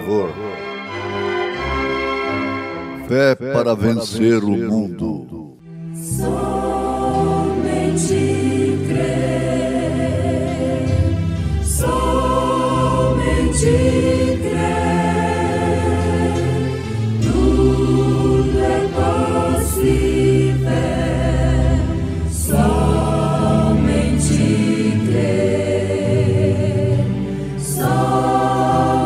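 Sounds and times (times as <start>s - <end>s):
choir singing a hymn: 5.9s - 29.0s.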